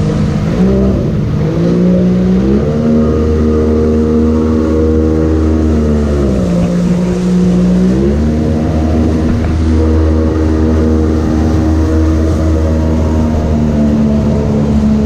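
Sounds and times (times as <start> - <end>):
jet boat engine running hard: 0.0 - 15.0.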